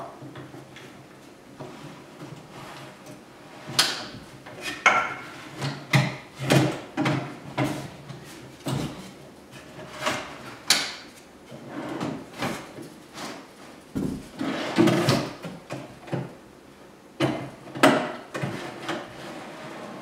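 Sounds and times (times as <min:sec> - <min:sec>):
drawers rolling on metal slides: 0:01.6 - 0:07.9, 0:11.5 - 0:12.7, 0:14.2 - 0:15.4, 0:18.3 - 0:20.0.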